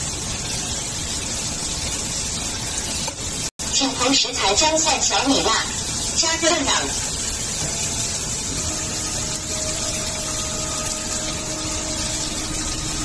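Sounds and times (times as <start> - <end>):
food frying hiss: 0.0 - 13.0.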